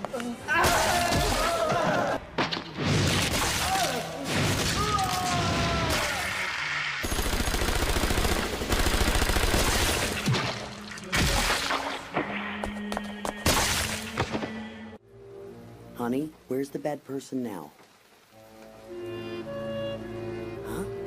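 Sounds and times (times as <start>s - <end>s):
automatic gunfire: 7.0s - 10.2s.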